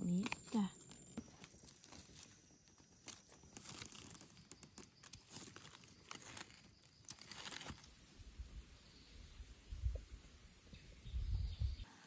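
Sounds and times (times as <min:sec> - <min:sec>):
leaf litter crunching: 0:00.0 - 0:07.9.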